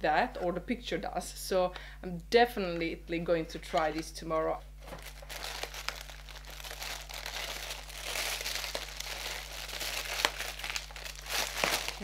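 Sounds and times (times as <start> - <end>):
wrapping crinkling and rustling: 4.8 - 12.0.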